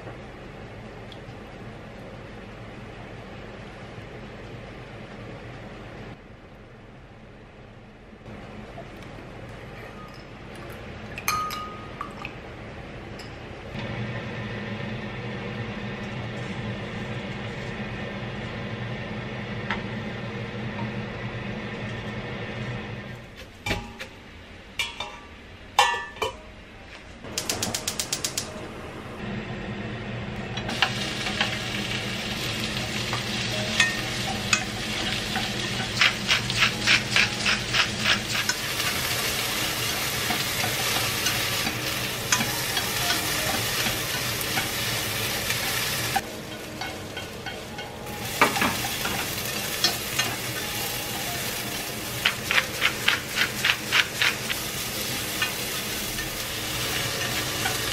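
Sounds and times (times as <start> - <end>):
clinks: 11.2 - 12.1
vegetables sizzling in oil: 30.7 - 57.9
chopsticks tapping and scraping pan: 33.7 - 39.0, 40.2 - 44.9, 45.5 - 50.4, 52.2 - 57.9.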